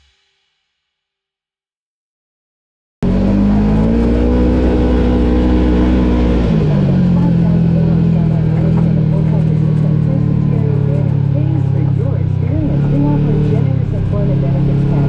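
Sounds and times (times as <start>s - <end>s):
vehicle engine running: 3.0s - 15.0s.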